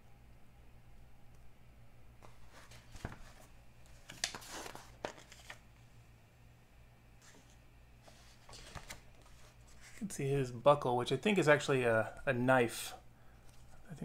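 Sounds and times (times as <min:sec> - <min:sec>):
low steady hum: 0:00.0 - 0:14.0
magazine pages rustling: 0:02.2 - 0:05.7, 0:07.2 - 0:10.1.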